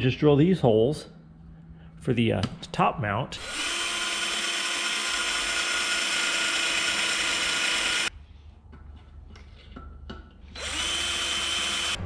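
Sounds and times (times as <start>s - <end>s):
cordless drill boring metal: 3.4s - 8.1s, 10.5s - 12.0s.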